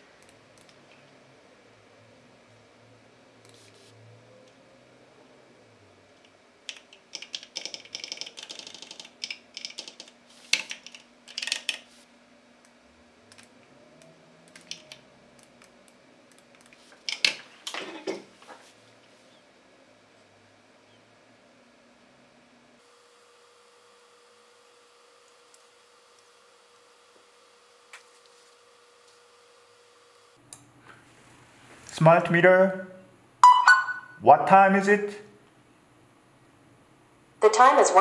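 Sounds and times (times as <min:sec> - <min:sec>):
computer keyboard typing: 0:06.7 - 0:11.9, 0:14.5 - 0:15.5.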